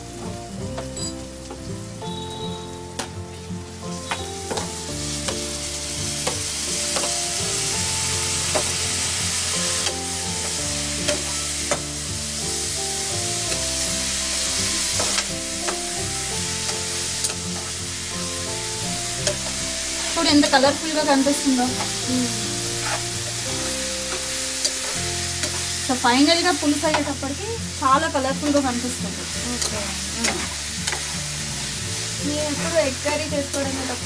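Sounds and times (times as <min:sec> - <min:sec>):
vegetables sizzling in oil: 0:00.0 - 0:34.0
spatula scraping metal pan: 0:22.6 - 0:23.4.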